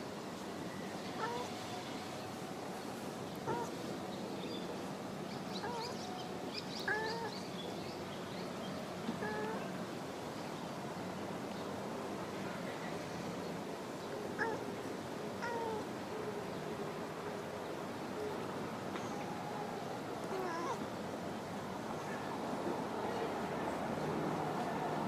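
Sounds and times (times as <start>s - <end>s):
cat calling softly: 1.1s - 2.0s, 3.4s - 3.9s, 5.5s - 7.5s, 9.0s - 9.8s, 14.3s - 14.8s, 15.4s - 16.5s, 19.0s - 20.9s.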